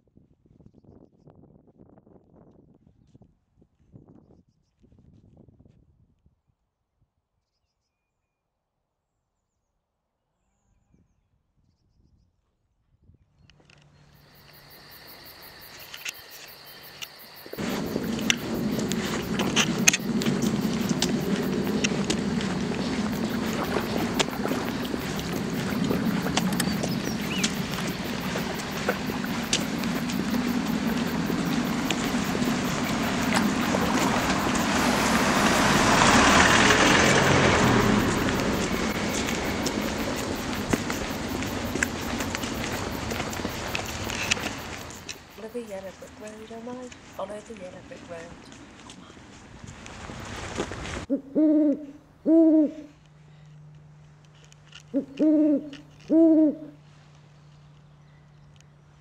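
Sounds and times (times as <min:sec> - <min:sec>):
rustling: 0:13.6 - 0:34.9, 0:37.6 - 0:51.1
road vehicle passing by: 0:16.7 - 0:59.0
bird hooting: 0:17.5 - 0:44.7, 0:51.1 - 0:53.0, 0:54.8 - 0:56.8.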